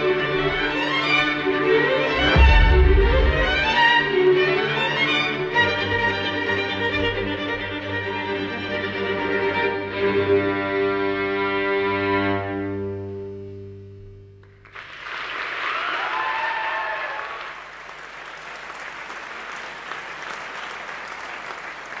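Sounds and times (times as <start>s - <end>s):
audience applause: 14.6s - 22.0s.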